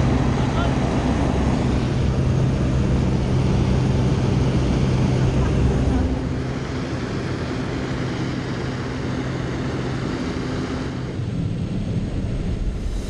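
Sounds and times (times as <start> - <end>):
propeller plane engine drone: 0.0 - 13.0
rushing air: 11.7 - 13.0.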